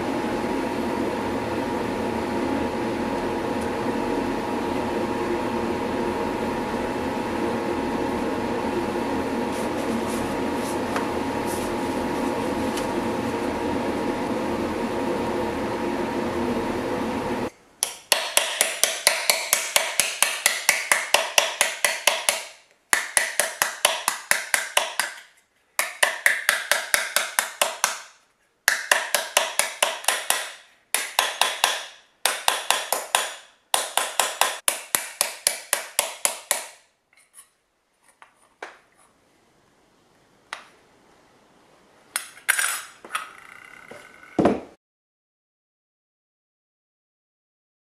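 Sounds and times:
hammer striking steel disc: 17.8s - 25.2s, 28.7s - 36.8s.

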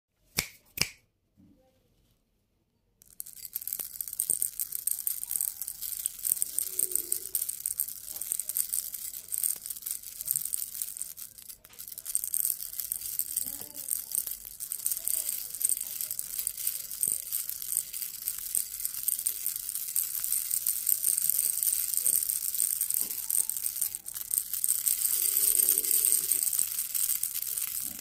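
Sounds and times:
candies rattling in glass bowl: 3.0s - 28.0s.

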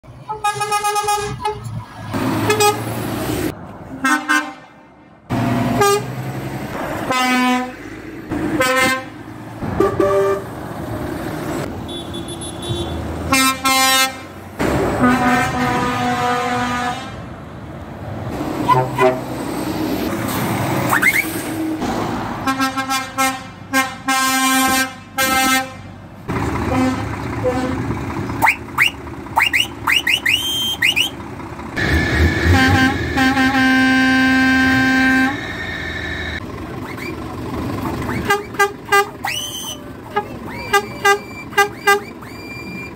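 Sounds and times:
truck engine noise: 0.0s - 42.9s
lorry air horn blasts: 31.8s - 35.9s.

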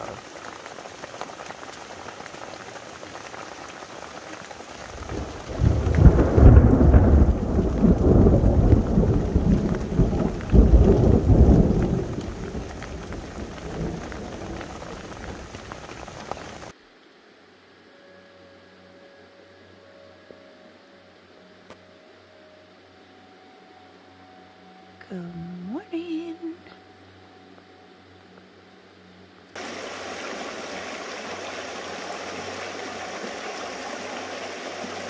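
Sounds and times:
steady rain: 0.0s - 35.0s
close thunder rumble: 4.9s - 16.7s.

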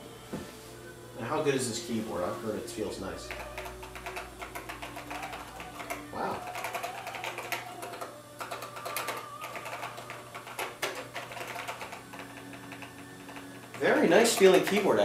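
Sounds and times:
keyboard typing: 3.2s - 15.0s.

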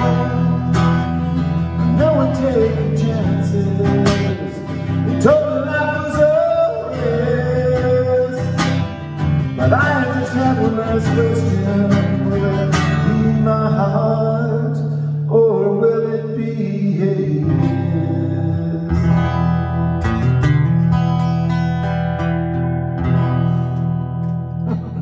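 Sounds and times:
man singing: 0.0s - 19.7s
strummed acoustic guitar: 0.0s - 25.0s.

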